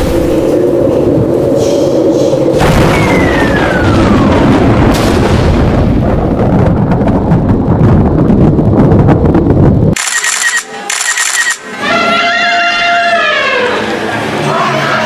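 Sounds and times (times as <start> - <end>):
loud rumble: 0.0 - 10.1
explosion blast: 2.5 - 10.0.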